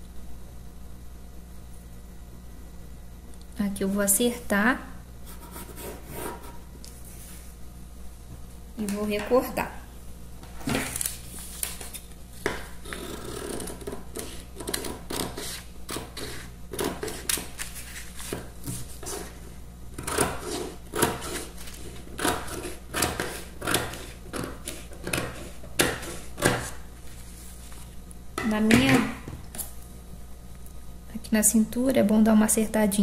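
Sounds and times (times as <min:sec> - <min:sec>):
paper rustling: 0:10.6 - 0:12.2, 0:17.1 - 0:19.4
scissors snipping paper: 0:12.9 - 0:18.4.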